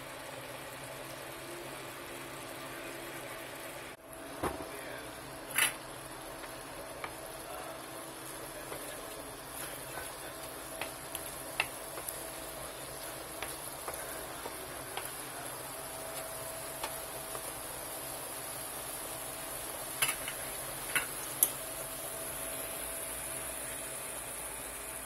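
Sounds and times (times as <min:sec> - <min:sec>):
vegetables sizzling in wok: 0:00.0 - 0:25.0
small pops and crackles: 0:09.6 - 0:15.4, 0:16.1 - 0:17.6, 0:20.0 - 0:21.6.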